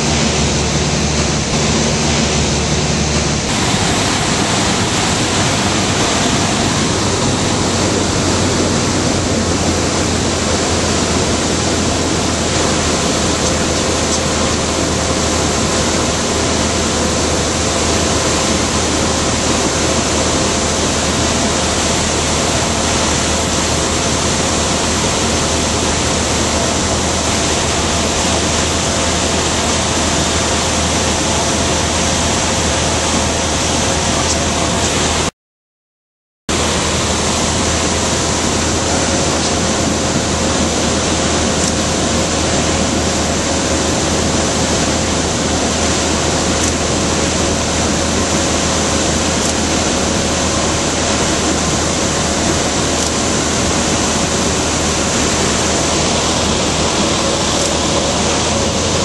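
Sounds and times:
propeller aircraft engine: 0:00.0 - 0:35.3, 0:36.5 - 0:59.0
wind rushing past: 0:00.0 - 0:35.3.

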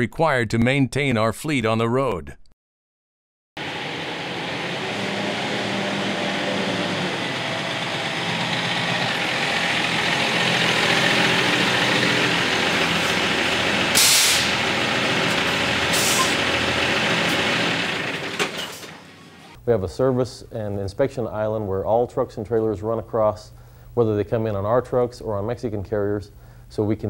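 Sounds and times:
truck diesel engine running: 0:03.6 - 0:19.6
air brake hisses: 0:13.9 - 0:14.6, 0:15.9 - 0:16.4.

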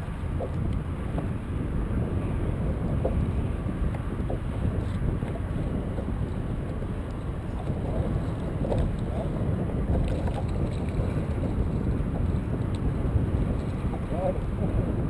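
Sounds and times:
water slapping against boat hull: 0:00.0 - 0:15.0
wind buffeting microphone: 0:00.0 - 0:15.0.

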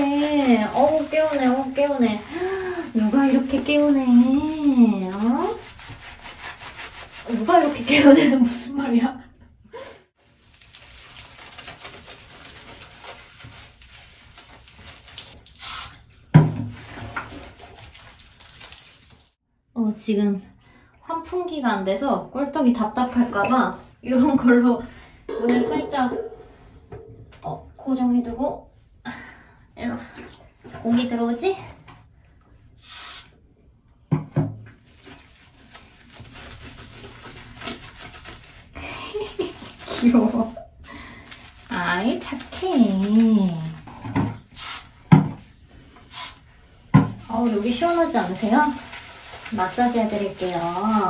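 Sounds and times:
faint rubbing and scraping: 0:00.0 - 0:08.0, 0:45.4 - 0:51.0
pattering and shuffling on tiles: 0:10.3 - 0:15.3, 0:34.8 - 0:44.3
short hiss: 0:32.8 - 0:33.3.

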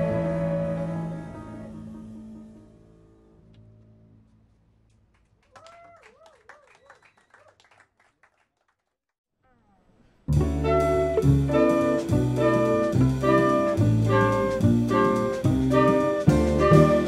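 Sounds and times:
jazz ensemble playing: 0:00.0 - 0:03.2, 0:10.3 - 0:17.0.

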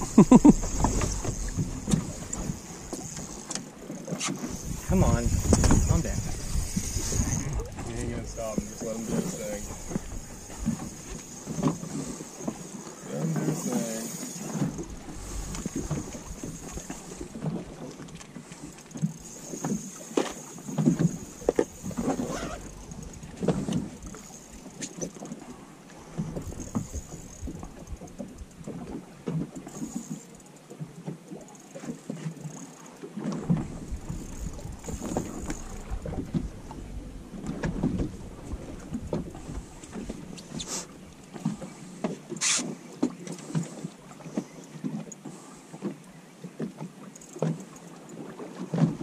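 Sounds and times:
waves slapping against boat hull: 0:00.0 - 0:49.0
wind buffeting microphone: 0:04.4 - 0:12.2, 0:33.5 - 0:40.6.

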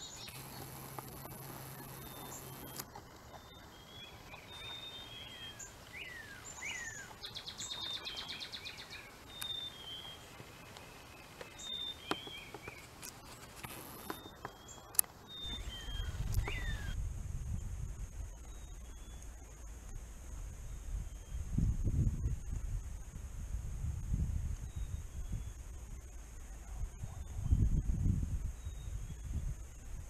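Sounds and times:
bird trill: 0:00.0 - 0:17.0
songbirds chirping and whistling: 0:00.0 - 0:19.7, 0:20.5 - 0:21.6, 0:24.6 - 0:29.9
low rumble: 0:15.5 - 0:25.9.

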